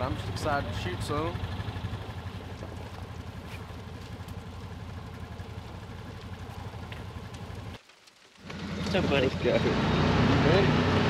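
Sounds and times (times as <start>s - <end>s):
utility vehicle engine idling: 0.0s - 7.8s.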